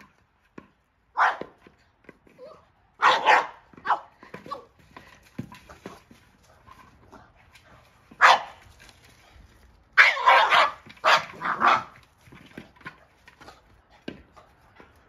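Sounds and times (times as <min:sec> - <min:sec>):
dog barking: 0:01.2 - 0:01.5, 0:03.0 - 0:04.1, 0:08.2 - 0:08.6, 0:10.0 - 0:12.0.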